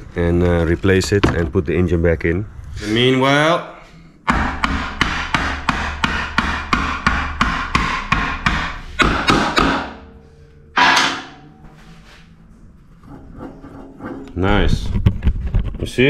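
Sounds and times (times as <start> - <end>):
hammer striking wooden block: 4.2 - 10.2, 10.8 - 11.5.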